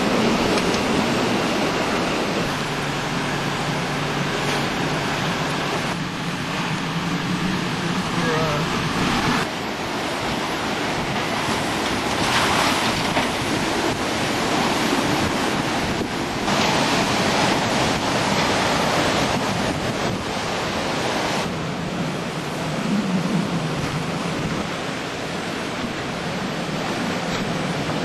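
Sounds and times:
rain: 0.0s - 28.0s
wind buffeting microphone: 0.0s - 28.0s.

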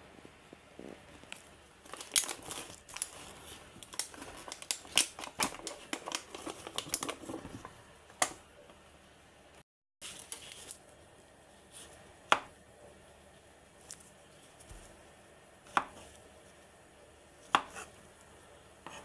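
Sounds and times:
plastic cling film crinkling: 1.0s - 7.8s, 10.0s - 10.9s.

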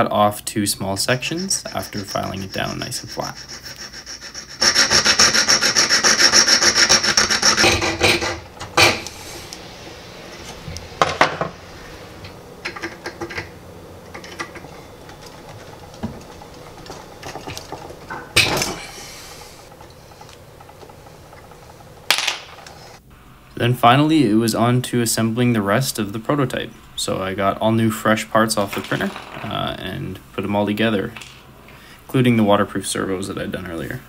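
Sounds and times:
file rasping on brass rod: 1.2s - 8.4s
handling noise: 8.0s - 23.0s.

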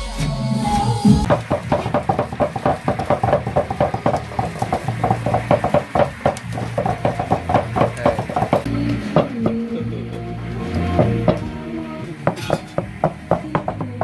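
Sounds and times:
rapid irregular knocking: 1.2s - 9.6s, 12.2s - 14.0s.

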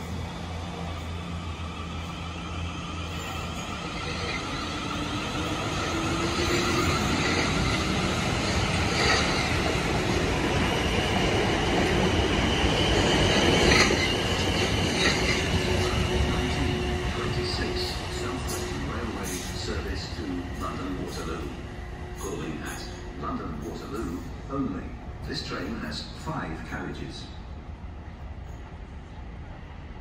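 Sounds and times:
train wheels rumbling on rails: 0.0s - 27.4s.

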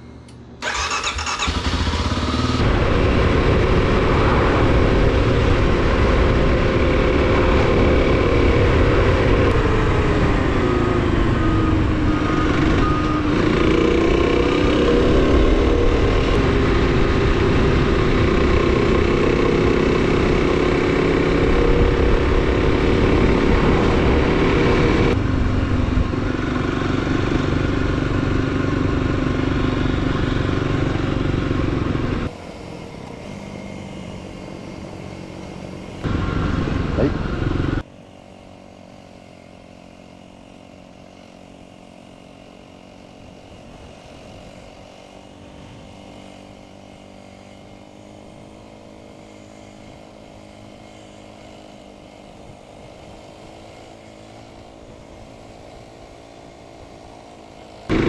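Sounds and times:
off-road motorcycle engine: 0.0s - 58.0s
low rumble: 1.9s - 13.3s.

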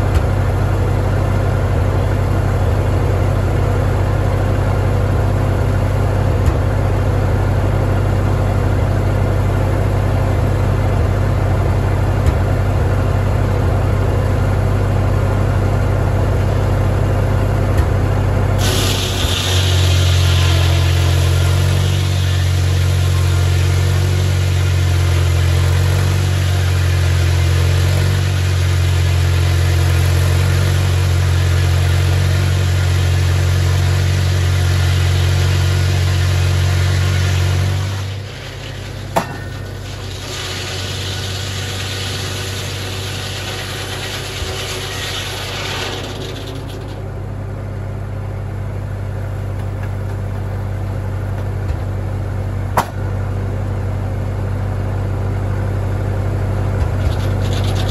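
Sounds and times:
tractor engine running under load: 0.0s - 57.9s
sawmill blade cutting log: 18.6s - 47.2s, 56.8s - 57.9s
sharp knock: 52.8s - 53.0s.

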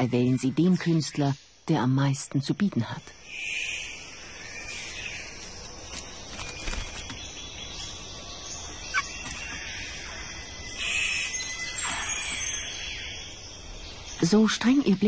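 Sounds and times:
birds calling: 3.1s - 15.0s.

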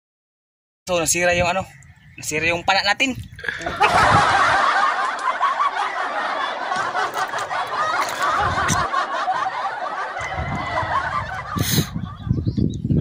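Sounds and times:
people laughing: 3.4s - 12.6s.

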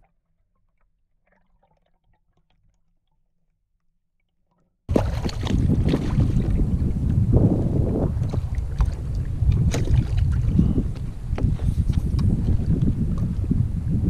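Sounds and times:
water splashing against kayak hull: 4.9s - 13.8s
wind rush on microphone: 4.9s - 14.0s.

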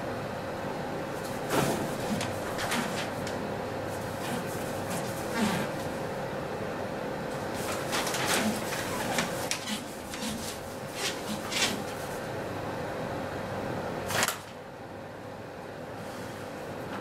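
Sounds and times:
steady hum and hiss: 0.0s - 17.0s
paper crinkling: 7.5s - 12.2s.

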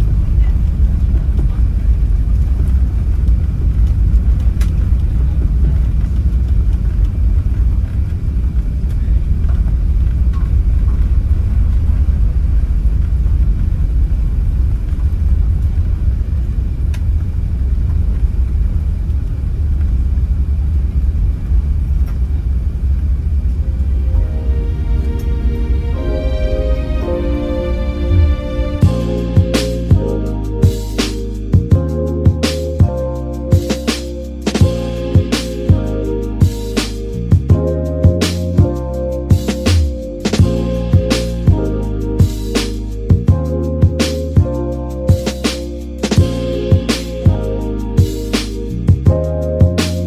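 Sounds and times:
aircraft engines at low power: 0.0s - 26.2s.

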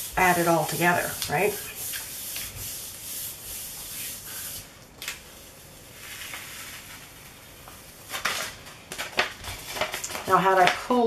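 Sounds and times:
hand rubbing over paper: 0.0s - 4.7s.

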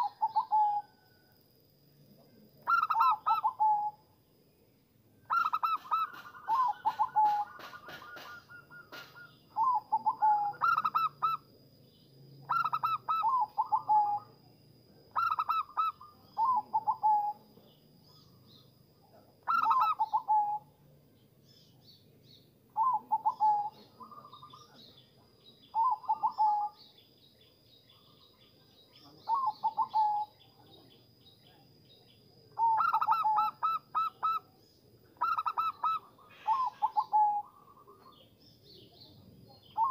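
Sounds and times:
dove cooing: 0.0s - 1.0s, 2.6s - 4.0s, 5.3s - 11.5s, 12.4s - 14.4s, 15.1s - 17.5s, 19.4s - 20.7s, 22.8s - 24.8s, 25.7s - 26.9s, 29.2s - 30.4s, 32.6s - 34.5s, 35.2s - 38.3s, 39.6s - 39.9s
higher bird chirps: 0.0s - 1.2s, 2.6s - 39.9s.

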